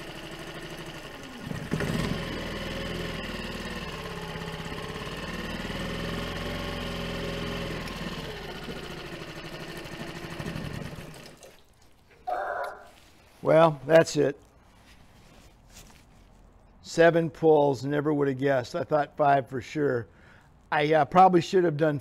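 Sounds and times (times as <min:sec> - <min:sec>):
outboard motor running unevenly: 0:00.0 - 0:11.5.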